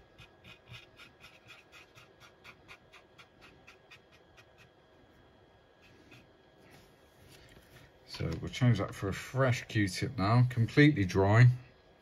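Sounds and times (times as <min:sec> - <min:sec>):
cotton bud rubbing on plastic: 0:00.0 - 0:04.8.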